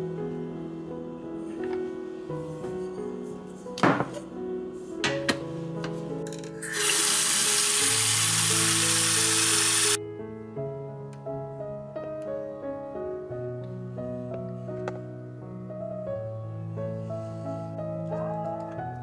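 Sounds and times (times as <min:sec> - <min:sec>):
gentle background music: 0:00.0 - 0:19.0
tap water running into sink: 0:06.6 - 0:10.0.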